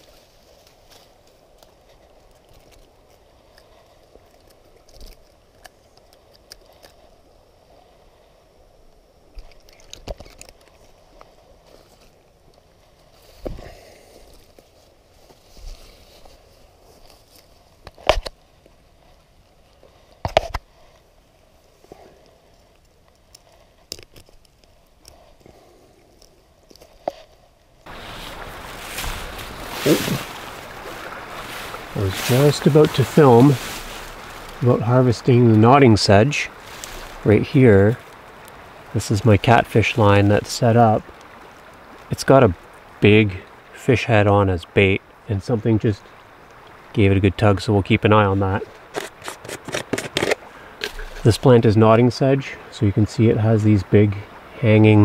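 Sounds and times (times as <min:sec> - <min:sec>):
river water flowing: 0:00.0 - 0:15.1, 0:27.8 - 0:55.0
faint clicks and rustles: 0:00.0 - 0:43.7, 0:48.4 - 0:52.0
small splash: 0:27.9 - 0:35.3
wind on microphone: 0:27.9 - 0:39.0.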